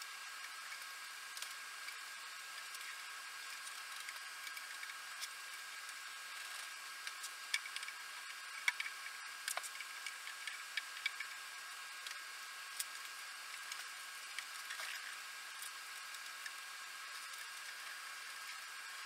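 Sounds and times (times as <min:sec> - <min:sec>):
steady hiss: 0:00.0 - 0:19.0
small clicks and taps: 0:07.0 - 0:11.4.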